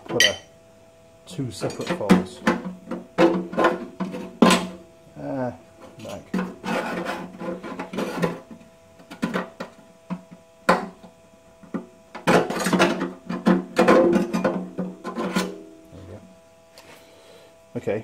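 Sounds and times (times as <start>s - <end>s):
metal clattering and scraping: 5.8s - 8.5s.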